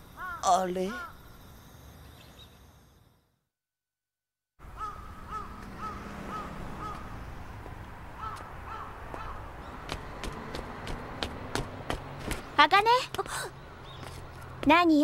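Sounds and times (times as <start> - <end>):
crows cawing: 0.2 - 1.2, 4.6 - 7.3, 8.1 - 10.4.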